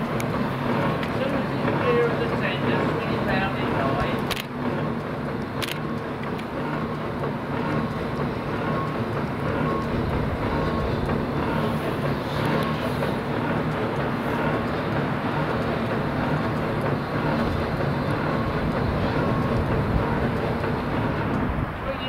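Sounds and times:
crane engine humming: 0.0s - 22.0s.

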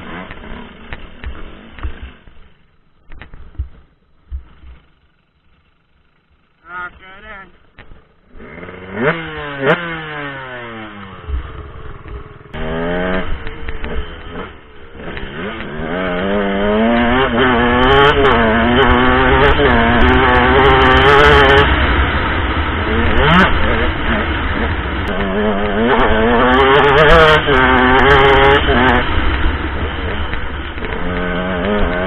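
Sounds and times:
dirt bike engine revving: 0.0s - 2.5s, 6.8s - 32.0s.

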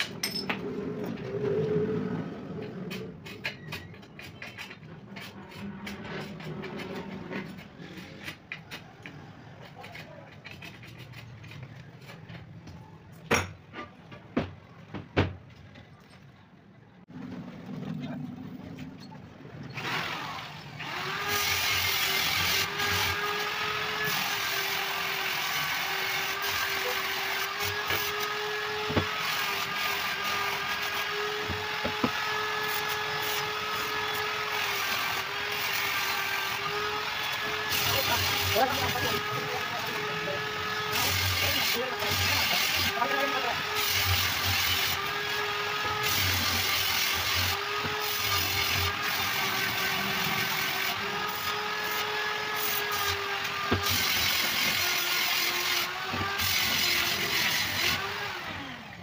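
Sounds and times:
grinder grinding glass: 19.7s - 58.4s.

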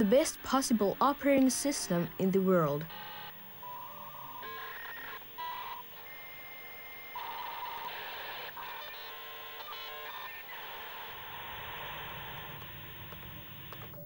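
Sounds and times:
modem dialling and handshake tones: 0.0s - 14.0s.

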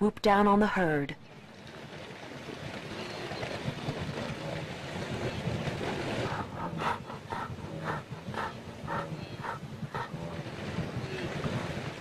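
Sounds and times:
herd rumble and grunting: 2.8s - 12.0s
short grunting calls: 6.0s - 11.4s.

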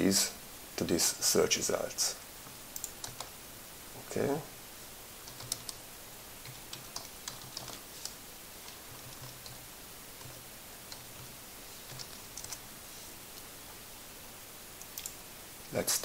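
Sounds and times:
typing on computer keyboard: 2.8s - 3.3s, 5.2s - 5.8s, 6.4s - 9.6s, 11.9s - 12.6s.

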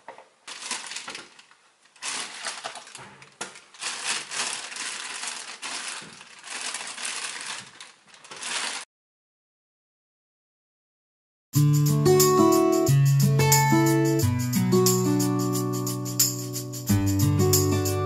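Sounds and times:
plastic bag crinkling: 0.0s - 8.9s.

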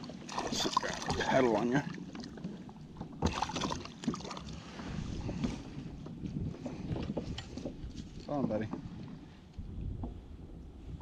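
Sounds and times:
water splashing: 0.0s - 4.8s
wind buffeting microphone: 4.5s - 11.0s
knocks and clicks on kayak hull: 5.2s - 10.2s.

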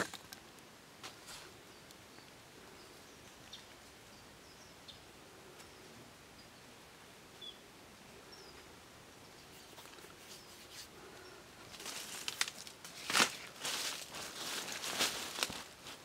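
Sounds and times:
faint bird chirp: 1.2s - 11.8s
dry leaves rustling and scraping: 11.7s - 16.0s.

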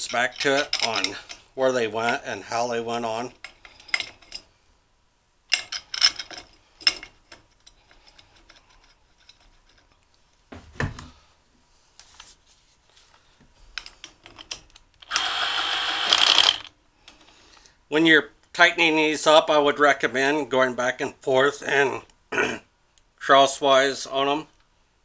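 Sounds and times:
metal parts clinking: 0.0s - 1.4s
impact driver driving bolt: 15.0s - 16.7s.

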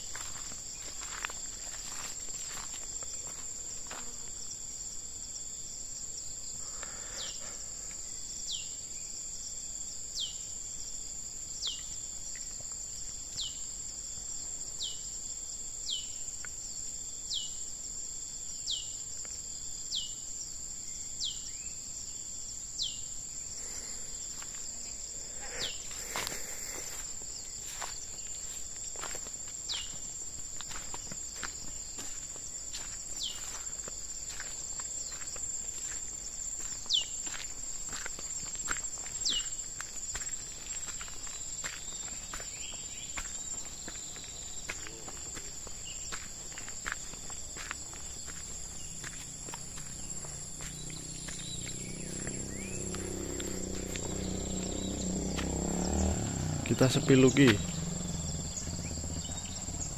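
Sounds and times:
footsteps on dirt trail: 0.0s - 4.6s, 23.6s - 59.9s
high-pitched insect drone: 19.9s - 59.9s.

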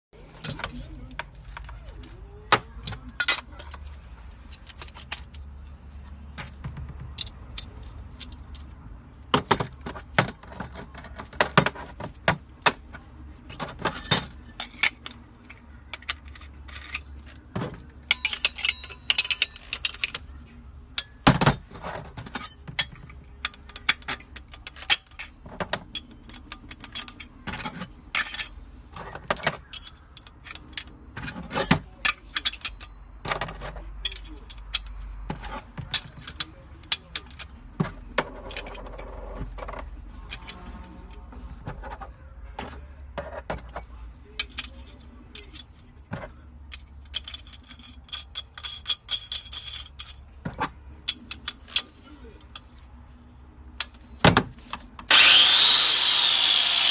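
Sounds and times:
metal tools clinking: 0.3s - 56.9s.

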